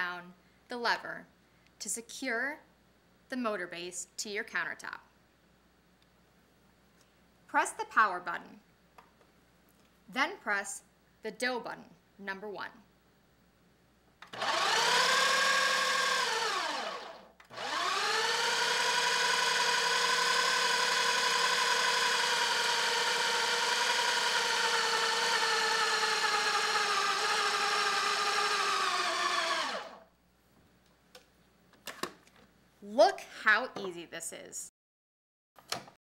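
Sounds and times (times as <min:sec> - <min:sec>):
food processor motor mixing dough: 0:14.3 - 0:30.0.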